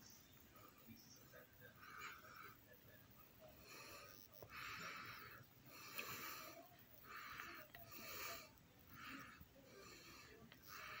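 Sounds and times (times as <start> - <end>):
person breathing: 3.6 - 11.0.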